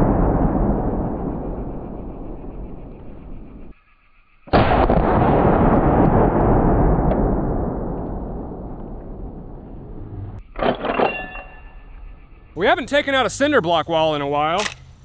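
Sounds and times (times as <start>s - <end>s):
rifle shot: 4.5s - 9.7s.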